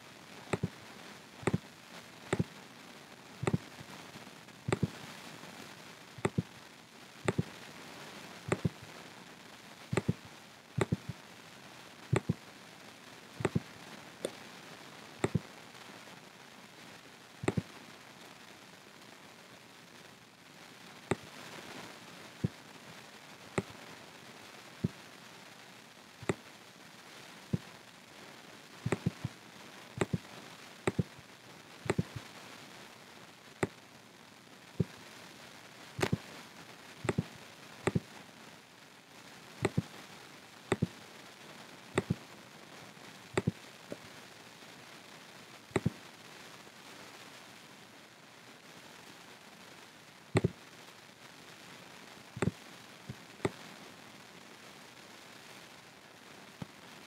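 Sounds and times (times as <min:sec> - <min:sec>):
faint steady hiss: 0:00.0 - 0:57.0
computer mouse clicking: 0:00.5 - 0:00.7, 0:04.7 - 0:04.9, 0:06.2 - 0:06.4, 0:07.3 - 0:07.5, 0:08.5 - 0:08.8, 0:09.9 - 0:10.2, 0:10.8 - 0:11.1, 0:12.1 - 0:12.4, 0:13.4 - 0:13.6, 0:15.2 - 0:15.4, 0:17.4 - 0:17.6, 0:28.8 - 0:29.3, 0:30.0 - 0:30.2, 0:30.9 - 0:31.1, 0:31.9 - 0:32.2, 0:36.0 - 0:36.2, 0:37.0 - 0:37.2, 0:37.8 - 0:38.0, 0:39.6 - 0:39.8, 0:40.7 - 0:40.9, 0:42.0 - 0:42.2, 0:43.4 - 0:43.6, 0:50.4 - 0:50.6.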